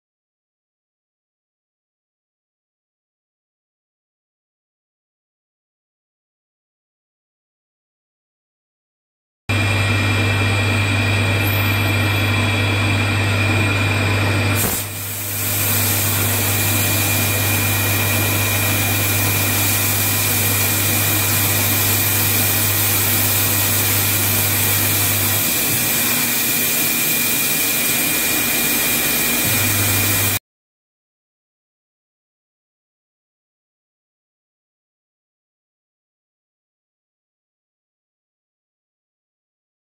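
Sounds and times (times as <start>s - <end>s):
low machine hum: 9.5s - 30.4s
milling machine cutting metal: 9.5s - 30.4s.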